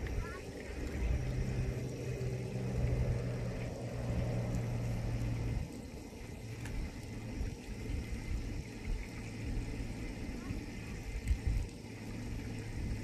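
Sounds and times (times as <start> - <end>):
low rumble: 0.0 - 13.0
motor humming: 0.0 - 13.0.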